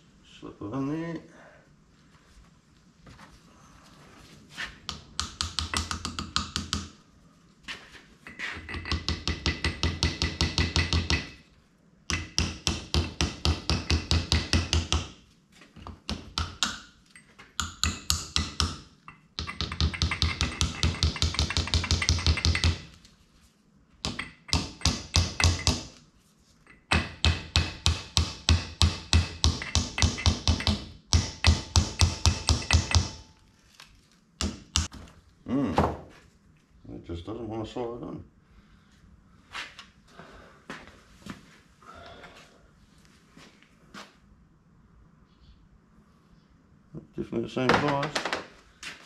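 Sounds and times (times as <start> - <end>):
sharp metal taps: 12.1 - 15.2, 15.9 - 22.9, 24.0 - 25.9, 26.7 - 33.3.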